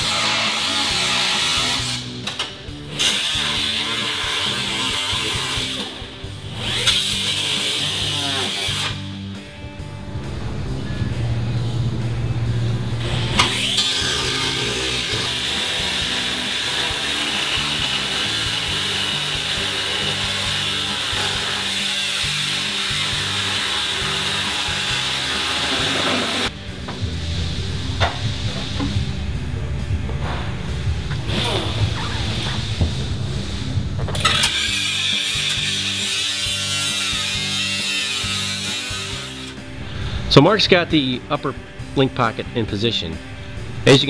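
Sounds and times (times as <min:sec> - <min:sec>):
cut-off wheel grinding metal: 0:00.0 - 0:09.4, 0:10.1 - 0:26.5, 0:34.2 - 0:40.1
background music with bass line: 0:00.0 - 0:44.0
background music with beat: 0:26.5 - 0:35.3.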